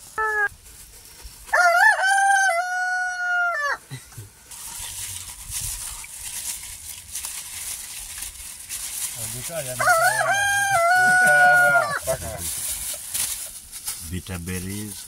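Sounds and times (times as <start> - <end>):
rooster crowing: 1.5 - 3.8, 9.7 - 12.2.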